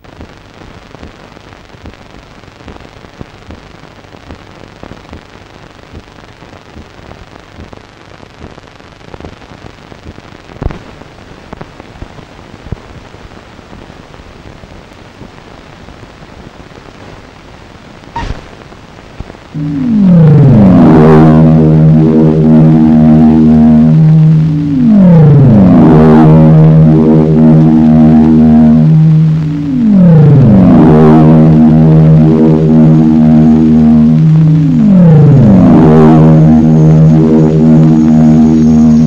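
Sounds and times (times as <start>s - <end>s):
film soundtrack hiss and crackles: 0.0s - 39.0s
loud pop: 18.1s - 18.6s.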